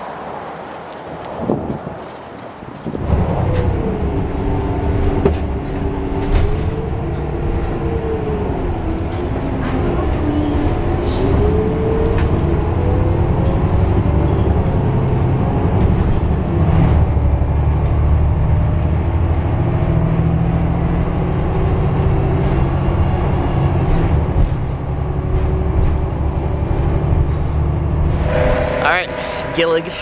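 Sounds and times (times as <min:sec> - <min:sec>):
bus engine and road rumble: 0:00.0 - 0:30.0
faint rising whine: 0:28.1 - 0:30.0.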